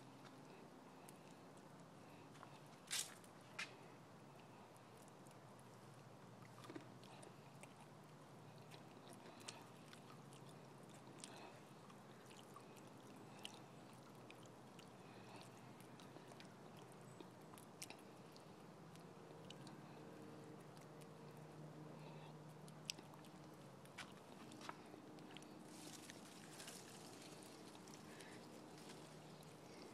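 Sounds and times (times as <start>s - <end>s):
squirrel chewing food: 0.0s - 29.9s.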